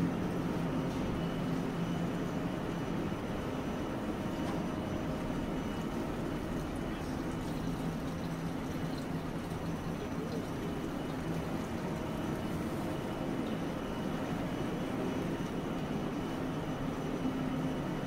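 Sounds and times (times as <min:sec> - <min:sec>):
streetcar equipment humming: 0:00.0 - 0:08.2.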